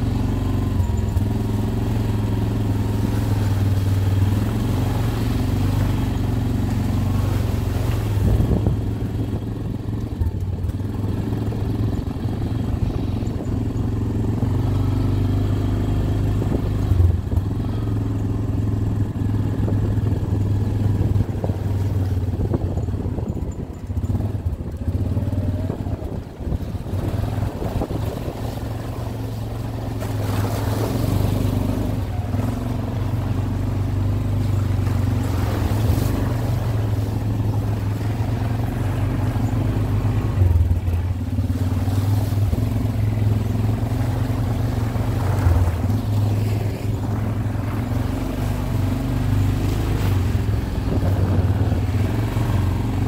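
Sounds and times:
atv engine running: 0.0 - 53.0
rough rushing noise: 34.7 - 53.0.

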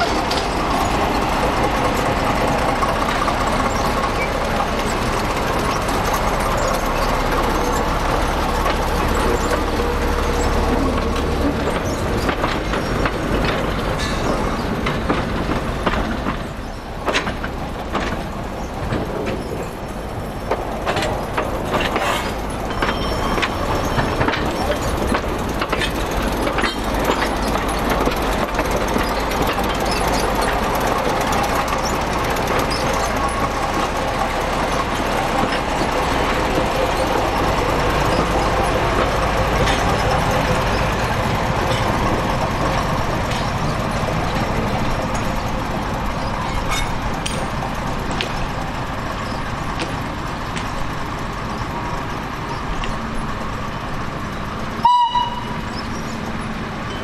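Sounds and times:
sharp clicks and knocks: 0.0 - 53.6
diesel locomotive engine running: 0.0 - 57.0.

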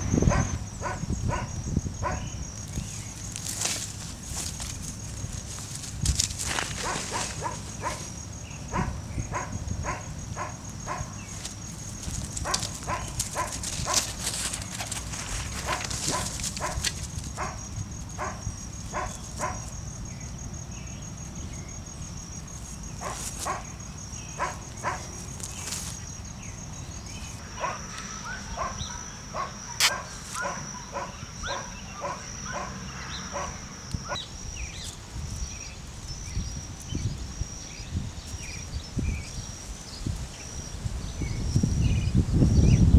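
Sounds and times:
dog barking: 0.3 - 2.3, 6.8 - 8.1, 8.7 - 11.2, 12.4 - 14.1, 15.6 - 16.8, 17.4 - 17.6, 18.2 - 19.7, 23.0 - 23.7, 24.4 - 25.2, 27.6 - 33.6.

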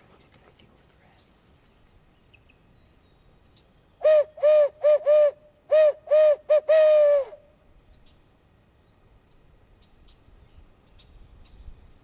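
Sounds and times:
owl hooter call hoots: 4.0 - 7.4.

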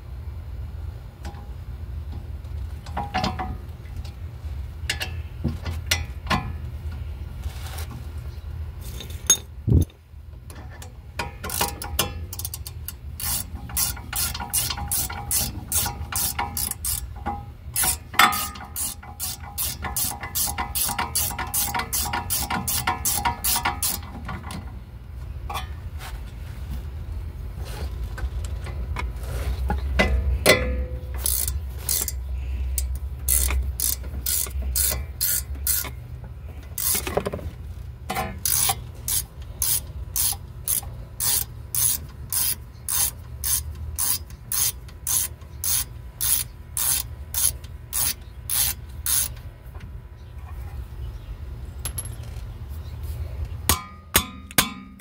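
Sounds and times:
ratchet wrench clicking: 11.2 - 24.6, 30.5 - 36.0, 36.7 - 37.2, 38.1 - 49.5.

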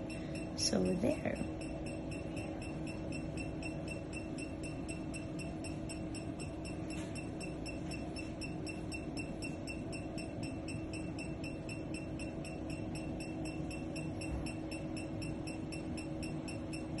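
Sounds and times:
machine low hum: 0.0 - 17.0.

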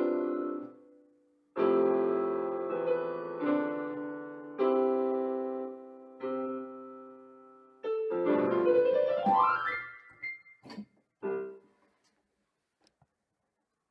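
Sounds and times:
electronic keyboard piano chords: 0.0 - 11.7.

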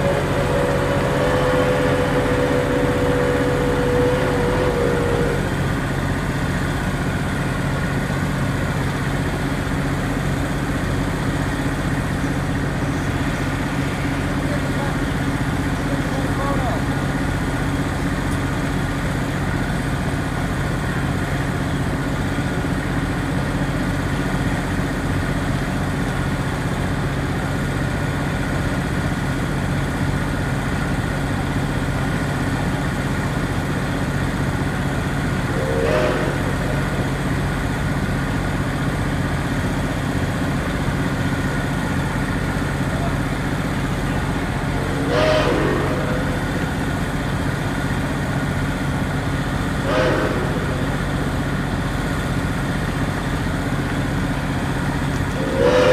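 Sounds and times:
engine humming: 0.0 - 16.2, 33.8 - 55.9.

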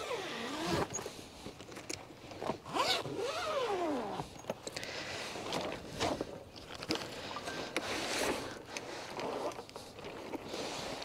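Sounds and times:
zipper being pulled open: 0.0 - 1.1, 2.5 - 4.3.

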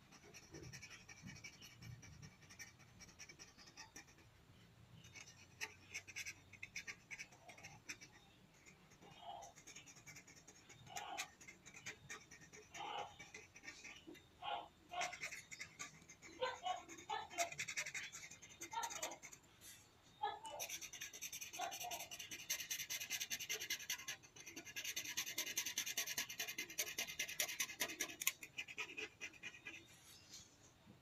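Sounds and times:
marker scribbling on paper: 0.0 - 4.4, 5.0 - 30.5.

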